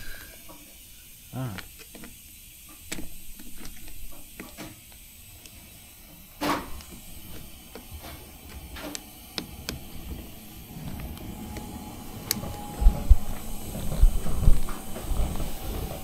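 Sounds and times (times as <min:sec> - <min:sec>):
low rumbling thumps: 0:12.0 - 0:16.0.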